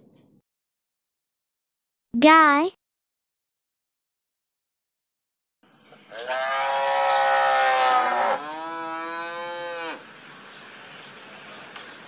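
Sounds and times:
cow mooing: 0:06.1 - 0:10.0.

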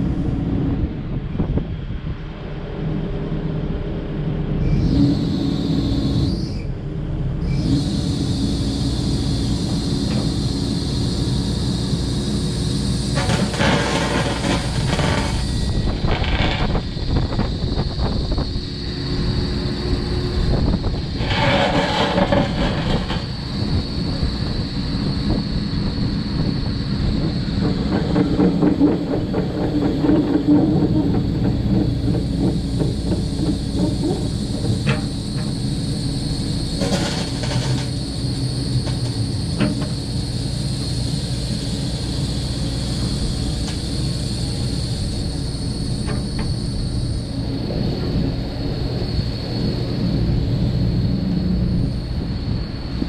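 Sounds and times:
excavator engine whining: 0:00.0 - 0:53.0
steel tracks clanking: 0:08.6 - 0:53.0
loud rasping bursts: 0:13.2 - 0:16.9, 0:21.1 - 0:23.4.

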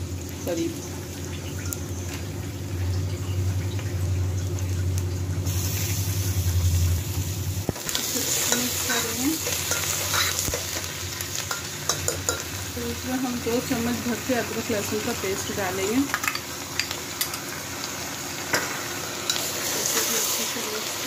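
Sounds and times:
meat sizzling in oil: 0:00.0 - 0:21.0
metal spoon clicking on pot: 0:11.5 - 0:12.4.

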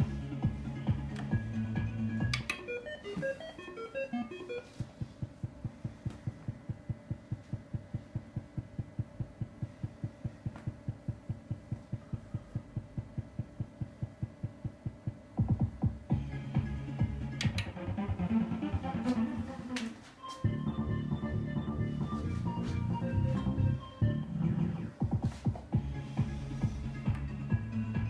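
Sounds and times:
slot machine music: 0:01.4 - 0:04.8, 0:20.3 - 0:24.9
slot machine beeping tones: 0:02.4 - 0:04.8, 0:20.2 - 0:24.6
fast low electronic pulsing: 0:04.8 - 0:19.5.

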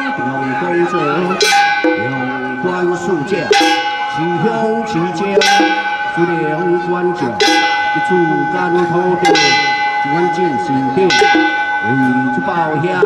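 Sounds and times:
person chanting into a microphone: 0:00.0 - 0:05.6
ritual bell ringing: 0:00.0 - 0:13.0.

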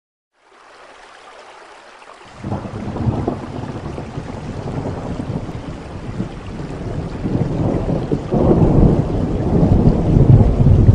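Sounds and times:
steady rain: 0:00.4 - 0:10.9
thunder rumbling: 0:02.3 - 0:10.9.

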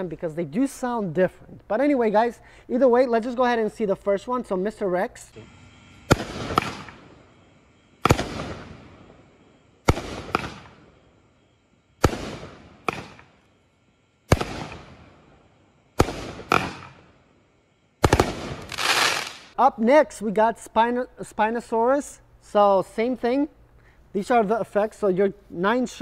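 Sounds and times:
fireworks bangs: 0:06.0 - 0:09.2, 0:09.8 - 0:11.1, 0:12.0 - 0:13.4, 0:14.3 - 0:15.3, 0:16.0 - 0:17.2, 0:18.0 - 0:19.5.

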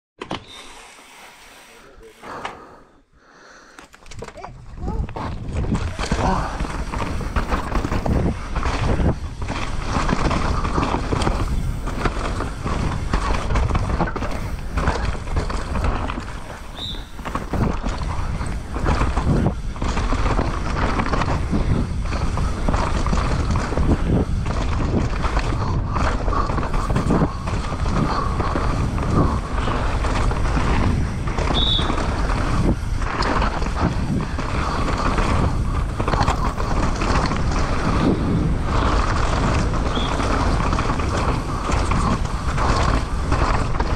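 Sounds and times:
short high squeaks: 0:00.4 - 0:01.8, 0:16.7 - 0:17.2
tyres on dirt: 0:03.7 - 0:43.9
bike rattling and knocking: 0:03.8 - 0:43.9
wind rumbling on microphone: 0:04.0 - 0:43.9.

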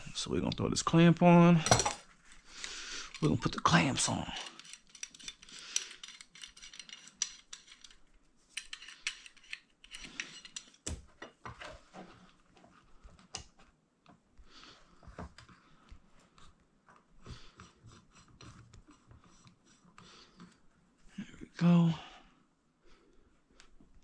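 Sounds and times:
metal hose clamps clinking: 0:02.7 - 0:10.9.

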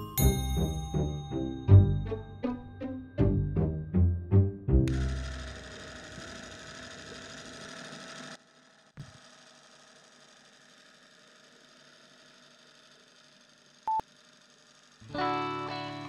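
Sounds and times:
music: 0:00.0 - 0:05.2, 0:15.1 - 0:16.0.

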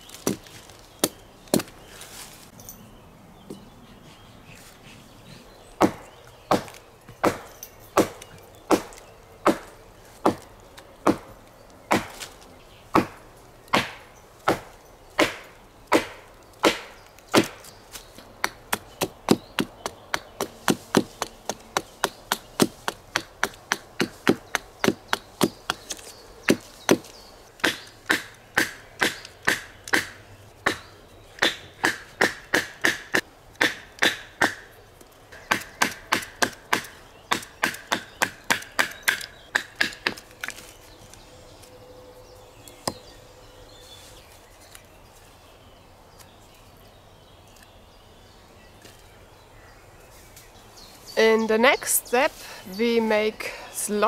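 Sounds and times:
axe chopping wood: 0:00.1 - 0:01.8, 0:05.8 - 0:11.3, 0:11.9 - 0:12.3, 0:12.9 - 0:34.7, 0:35.4 - 0:40.6.

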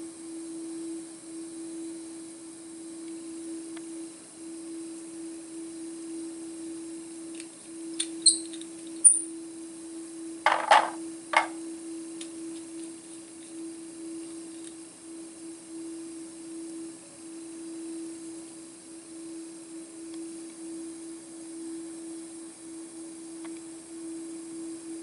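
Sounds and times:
high glass ring: 0:08.3 - 0:09.3.

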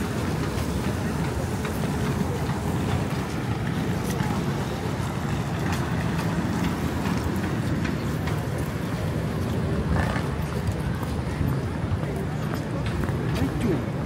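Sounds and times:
city street rumble: 0:00.0 - 0:14.0.

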